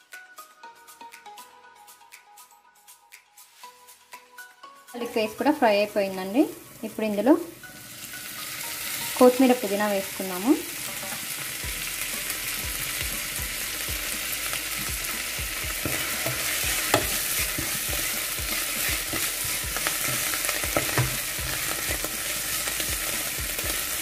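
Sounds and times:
herbs sizzling in hot oil: 4.9s - 24.0s
wooden spatula scraping pan: 15.9s - 22.0s.

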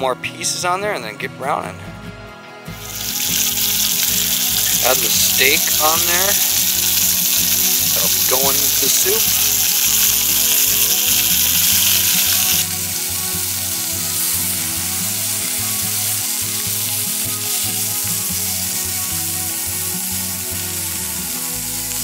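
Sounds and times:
steak sizzling in skillet: 2.8s - 22.0s.

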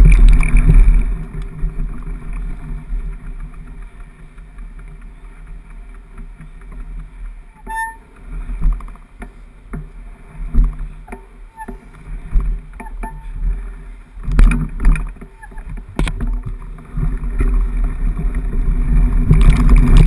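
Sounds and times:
bike knocking and rattling: 0.0s - 20.0s
low handling rumble: 0.0s - 20.0s
short squeaks: 7.5s - 8.2s, 11.0s - 12.0s, 12.8s - 13.4s, 15.0s - 16.4s.

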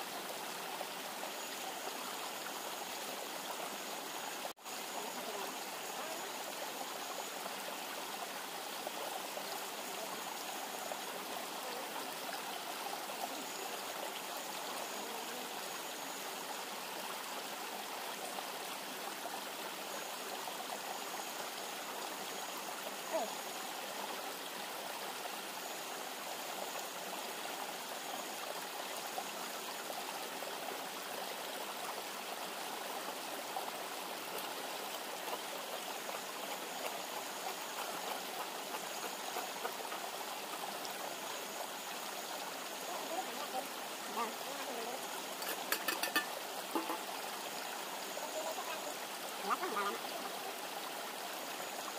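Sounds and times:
river rushing: 30.2s - 51.9s.

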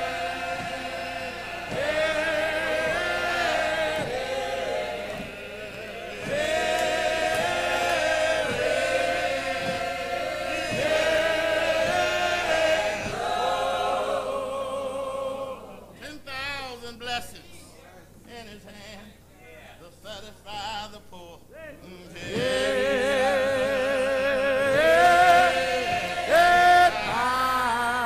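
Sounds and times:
choir singing a hymn: 0.0s - 16.0s, 22.1s - 28.0s.

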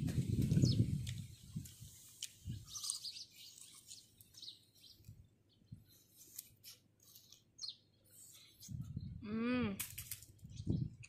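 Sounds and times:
birds chirping: 0.2s - 6.4s, 7.1s - 9.2s.

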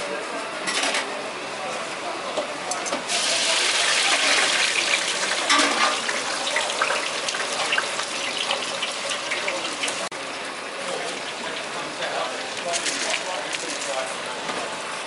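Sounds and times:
fish sizzling on a grill: 3.1s - 10.1s.

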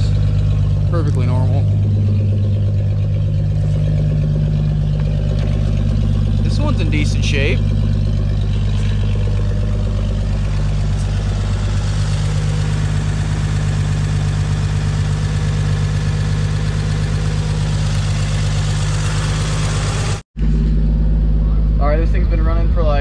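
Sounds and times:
truck engine idling: 0.0s - 23.0s.

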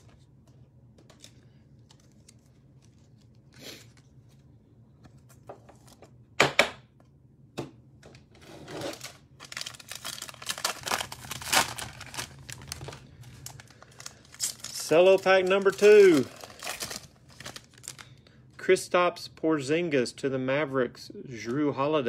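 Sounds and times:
cellophane wrapper crinkling and tearing: 1.0s - 4.4s, 8.7s - 18.3s.

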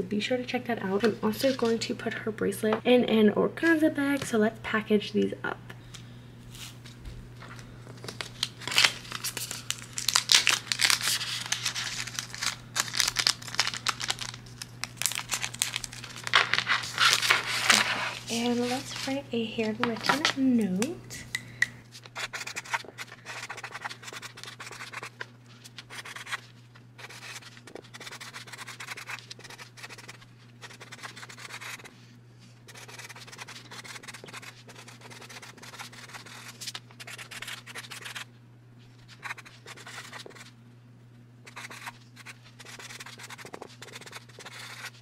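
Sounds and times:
low steady hum: 0.0s - 45.0s
marker writing on card: 27.0s - 31.9s, 32.7s - 38.2s, 41.5s - 45.0s.

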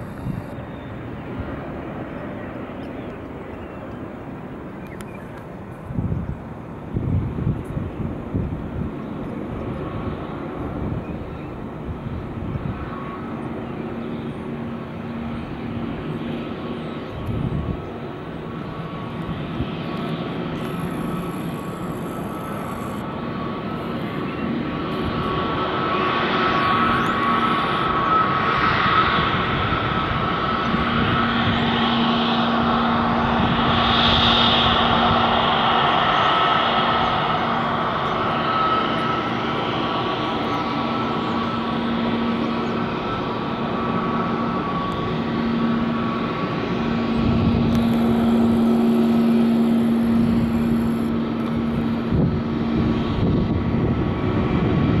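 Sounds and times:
jet engine whine: 0.0s - 55.0s.

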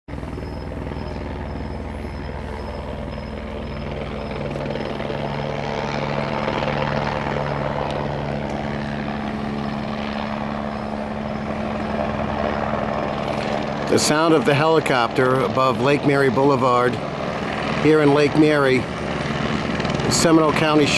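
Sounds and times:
low engine hum: 0.1s - 15.8s
helicopter rotor beating: 0.1s - 20.9s.

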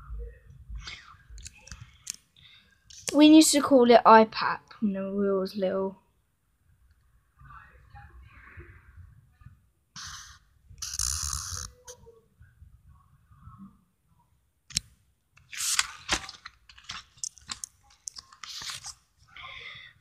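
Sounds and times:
marker scratching on paper: 10.0s - 11.7s, 17.5s - 19.0s
notebook clicks and rustles: 14.7s - 19.1s.

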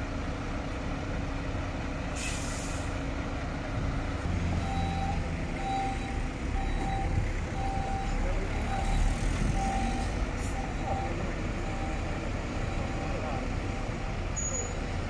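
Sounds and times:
diesel engines idling: 0.0s - 15.0s
air brakes hissing: 2.1s - 3.1s
truck reversing alarm beeping: 4.2s - 15.0s.

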